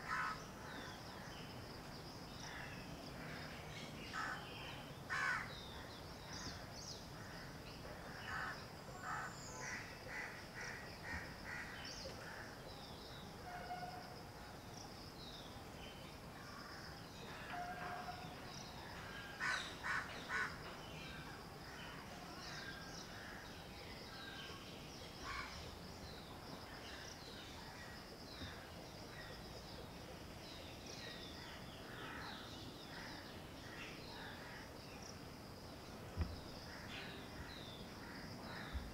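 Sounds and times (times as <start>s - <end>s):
crows cawing: 0.0s - 0.4s, 5.1s - 5.5s, 19.4s - 20.6s.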